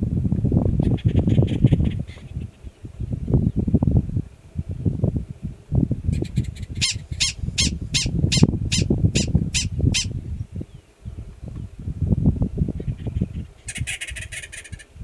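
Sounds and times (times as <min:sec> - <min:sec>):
prairie dog alarm barks: 0:06.4 - 0:10.1.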